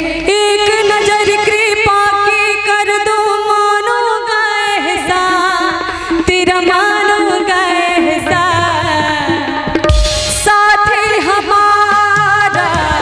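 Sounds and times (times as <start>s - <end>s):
tabla: 0.0s - 13.0s
instrumental accompaniment: 4.7s - 13.0s
devotional singing: 10.4s - 13.0s.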